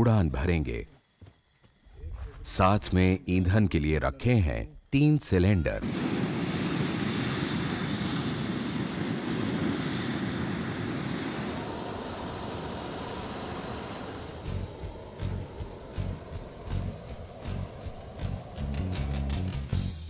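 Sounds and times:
balloon burner blast: 0:05.8 - 0:20.0
low gusty thumps: 0:14.4 - 0:19.9.

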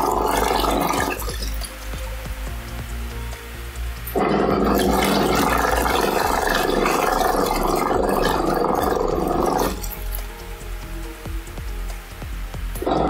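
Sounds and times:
washing machine churning water: 0:00.0 - 0:01.7, 0:04.2 - 0:10.0.

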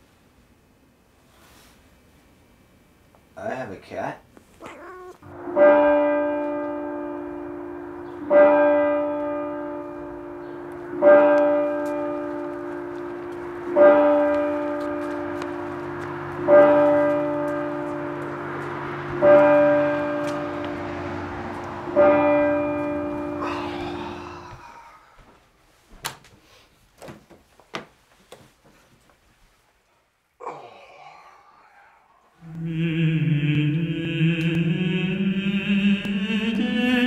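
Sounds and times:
church bell tolling: 0:05.2 - 0:24.2.

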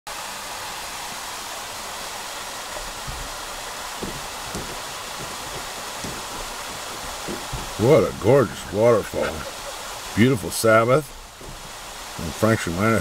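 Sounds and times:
waterfall pouring into a pool: 0:00.1 - 0:13.0
low bumps on microphone: 0:02.8 - 0:09.8, 0:11.1 - 0:12.2.

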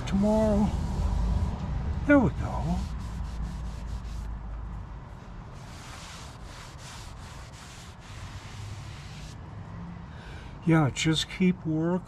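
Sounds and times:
rag wiping metal table: 0:02.5 - 0:04.3, 0:05.6 - 0:09.4.

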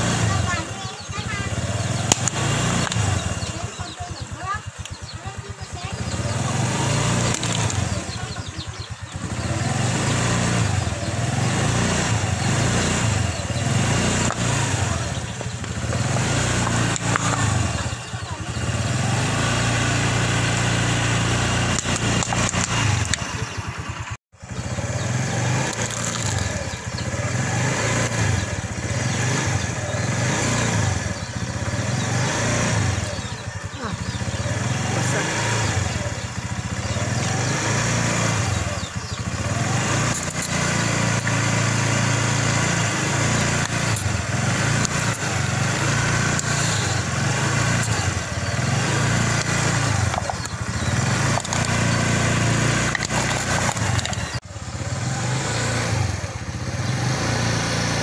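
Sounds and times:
motorcycle engine running: 0:00.0 - 0:58.0
tyre crushing plastic cups and bottles: 0:52.8 - 0:54.4.

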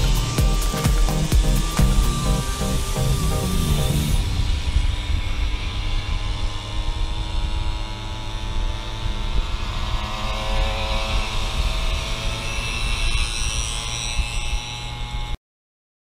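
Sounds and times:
moped engines buzzing: 0:00.0 - 0:15.4
wind rumble on microphone: 0:02.8 - 0:15.4.

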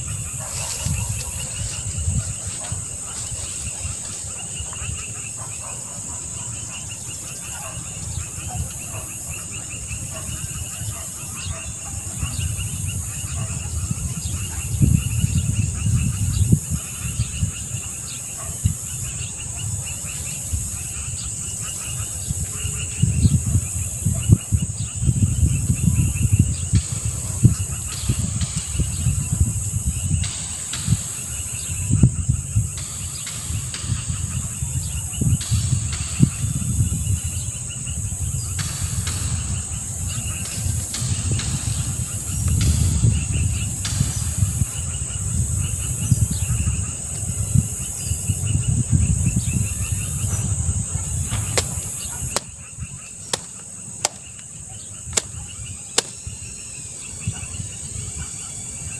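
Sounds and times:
insects chirring: 0:00.0 - 0:58.9
sharp clicks: 0:51.6 - 0:52.5, 0:53.3 - 0:54.5, 0:56.0 - 0:56.2.

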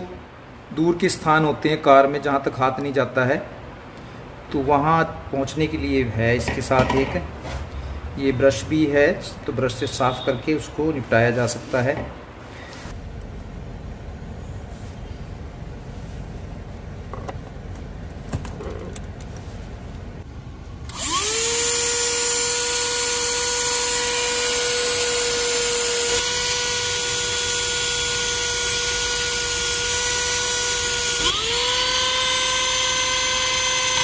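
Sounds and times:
vacuum cleaner motor whining: 0:20.9 - 0:34.0.

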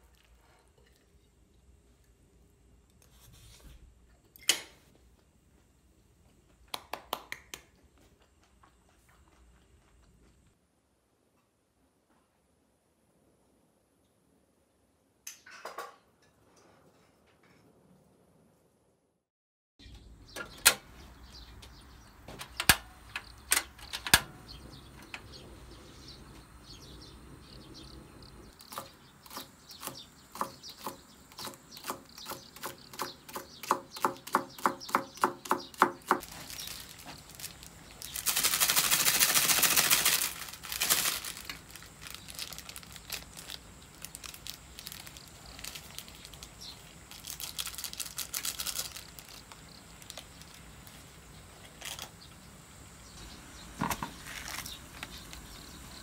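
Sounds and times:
packet rustling and crinkling: 0:36.2 - 0:52.2, 0:54.1 - 0:55.5.

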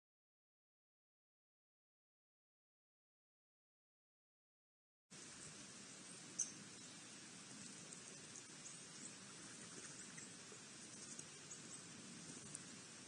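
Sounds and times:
outdoor hiss: 0:05.1 - 0:13.0
birds pecking on wooden feeder: 0:07.5 - 0:12.9.

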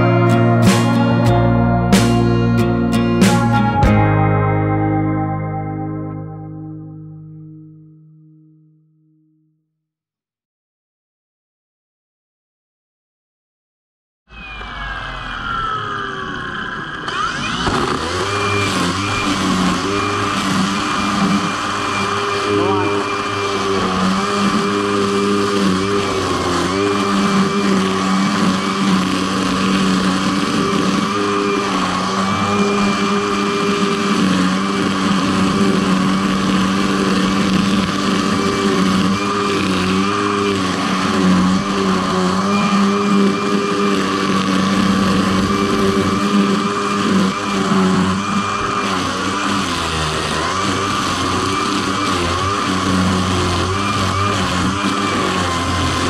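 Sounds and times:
motor humming with whine: 0:14.3 - 0:56.0.

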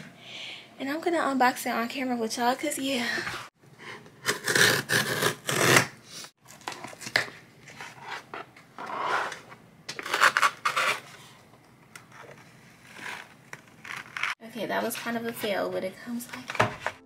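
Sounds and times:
cardboard and tape ripping: 0:04.2 - 0:07.4, 0:09.9 - 0:11.2, 0:12.8 - 0:14.4.

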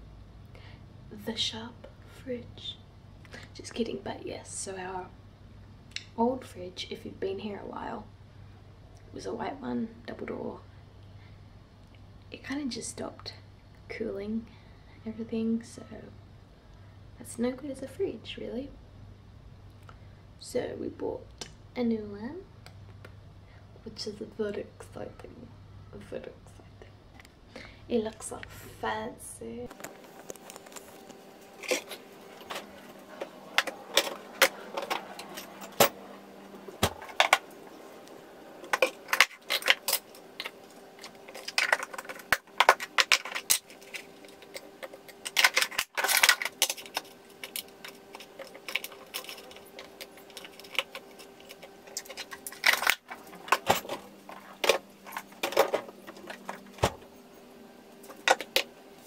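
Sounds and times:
faint steady hum: 0:00.0 - 0:59.0
plastic containers clattering: 0:38.6 - 0:57.0.

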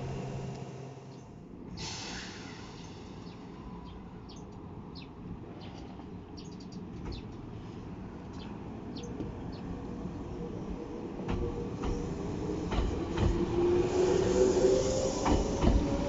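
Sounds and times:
brief hiss: 0:01.7 - 0:03.4
small birds chirping: 0:02.8 - 0:07.6, 0:08.2 - 0:09.7.

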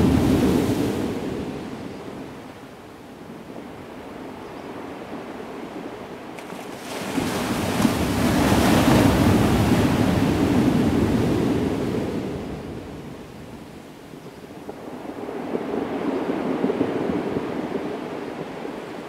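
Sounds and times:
strong wind buffeting microphone: 0:00.0 - 0:02.6, 0:07.0 - 0:19.0.

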